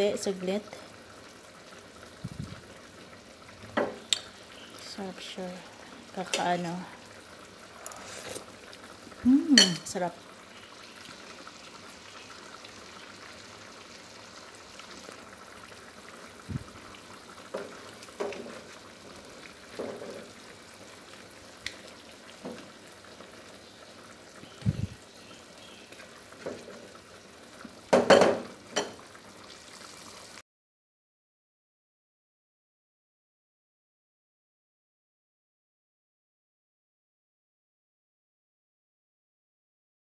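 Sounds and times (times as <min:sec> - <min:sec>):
curry bubbling in a pan: 0:00.1 - 0:30.4.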